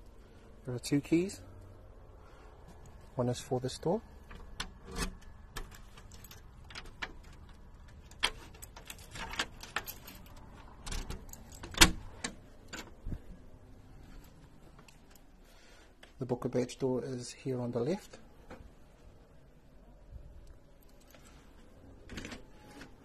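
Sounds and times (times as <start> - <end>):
key turning in door lock: 4.2 - 13.0
metallic lock clicks and rattles: 4.2 - 13.2
keys jingling: 5.1 - 13.3, 20.7 - 21.6.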